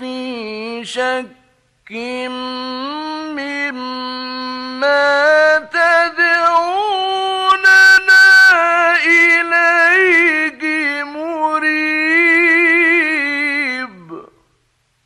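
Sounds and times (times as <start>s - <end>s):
man chanting melodic recitation: 0.0s - 14.4s.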